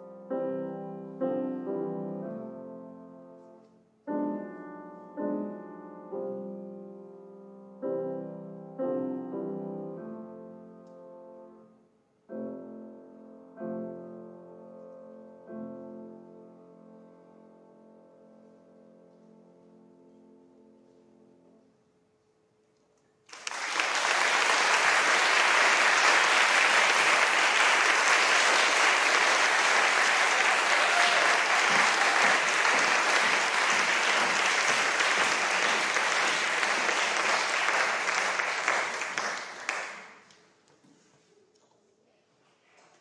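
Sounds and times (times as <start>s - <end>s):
audience applauding: 23.3s - 40.3s.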